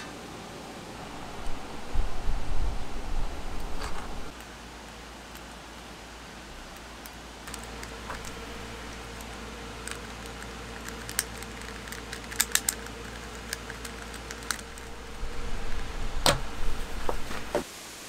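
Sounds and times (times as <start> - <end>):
faint steady hum: 0.0 - 18.0
puzzle cube clicking: 9.1 - 15.0.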